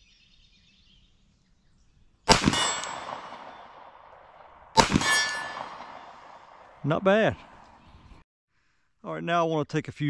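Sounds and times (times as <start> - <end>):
steel target ringing: 2.3 - 3.8, 4.8 - 6.7
pistol shots: 2.3 - 6.8.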